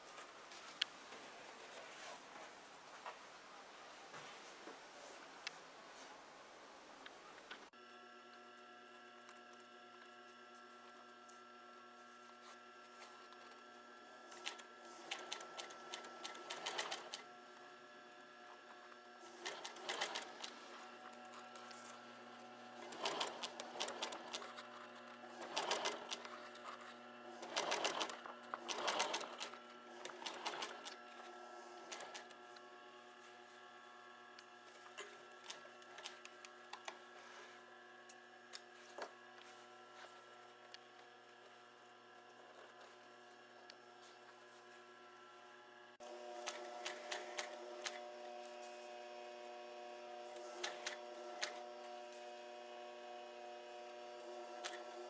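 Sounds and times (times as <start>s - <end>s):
sewing machine stitching: 14.2s - 17.3s, 19.2s - 32.4s, 46.1s - 48.2s, 50.2s - 51.9s, 54.0s - 55.0s.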